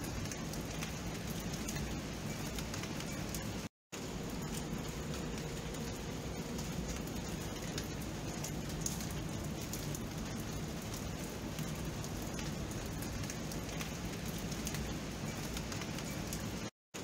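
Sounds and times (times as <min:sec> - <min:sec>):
raindrop taps: 0:00.0 - 0:03.5, 0:04.3 - 0:17.0
steady rain hiss: 0:00.0 - 0:17.0.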